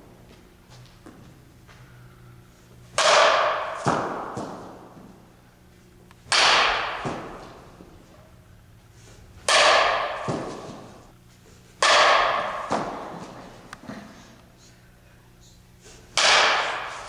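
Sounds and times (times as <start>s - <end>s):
softball bat cracking balls: 2.7s - 5.4s, 6.1s - 8.1s, 9.3s - 11.1s, 11.8s - 14.0s, 16.1s - 17.0s.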